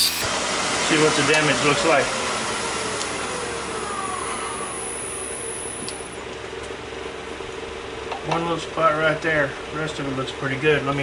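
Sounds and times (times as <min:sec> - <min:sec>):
machine hum: 0:00.0 - 0:06.3.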